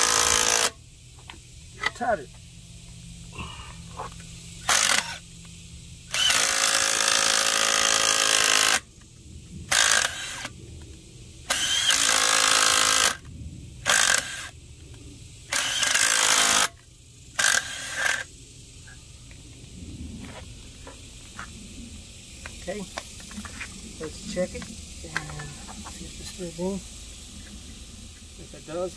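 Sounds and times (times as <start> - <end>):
power drill tapping threads: 0.0 - 0.8, 4.6 - 5.2, 6.1 - 8.8, 11.5 - 13.2, 13.9 - 14.5, 15.5 - 16.8, 17.4 - 18.3.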